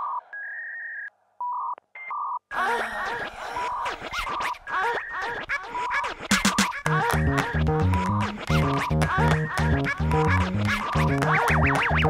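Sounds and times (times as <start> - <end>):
electronic music: 6.1 - 12.0.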